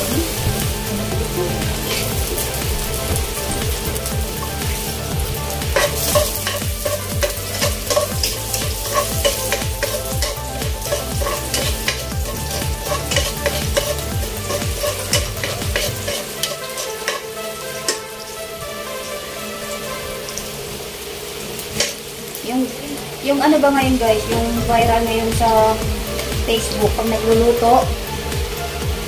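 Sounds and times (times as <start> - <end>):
aromatics sizzling in oil: 0.0 - 29.0
metal spatula scraping pot: 1.8 - 18.0.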